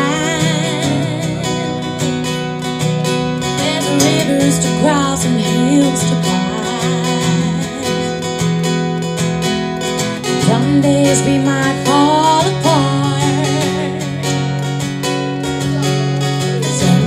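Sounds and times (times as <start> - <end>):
person singing: 0.0 - 2.2, 3.5 - 8.3, 10.3 - 14.7, 15.6 - 17.0
strummed acoustic guitar: 0.0 - 17.0.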